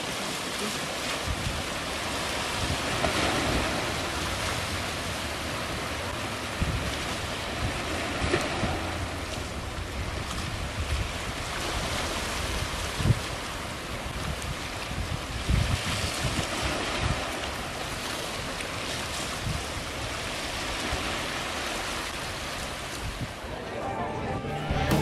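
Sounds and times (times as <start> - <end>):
sea waves: 0.0 - 25.0
wind buffeting microphone: 1.2 - 18.0, 22.2 - 23.5.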